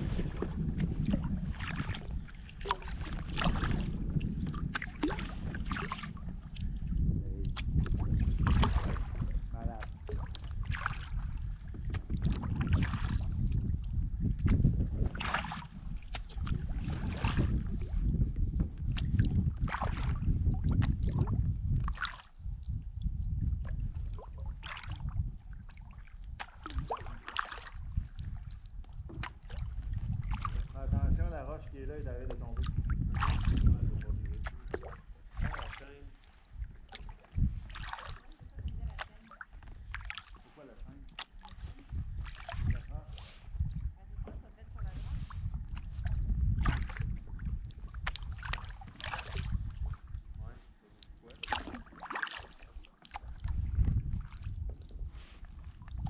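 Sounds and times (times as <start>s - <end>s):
steady low rumble: 0.0s - 26.9s
paddle splashing and dripping: 0.0s - 56.0s
wind on microphone: 0.0s - 56.0s.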